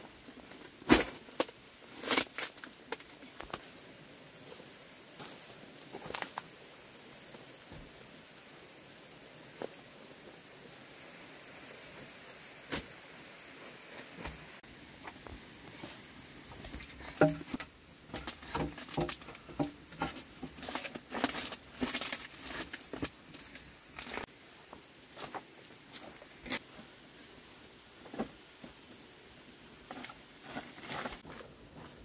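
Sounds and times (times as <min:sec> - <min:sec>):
leaves rustling underfoot: 0:00.0 - 0:07.7, 0:11.0 - 0:32.0
bamboo poles knocking and clicking: 0:16.8 - 0:21.5.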